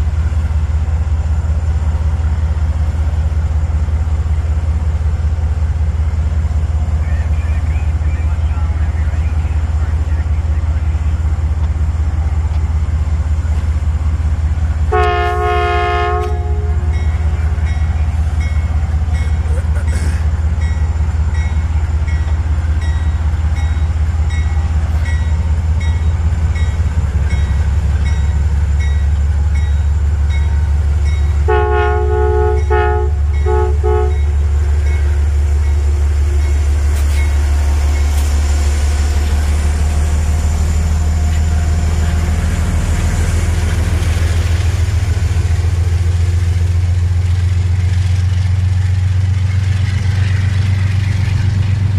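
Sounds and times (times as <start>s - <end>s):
diesel locomotive engine rumble: 0.0s - 51.9s
train air horn: 14.9s - 17.1s, 31.4s - 34.3s.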